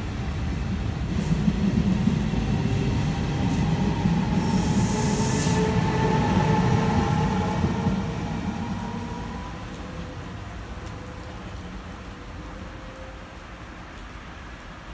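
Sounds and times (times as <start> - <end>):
train wheels rumbling: 0.0 - 11.1
high hiss: 3.5 - 7.6.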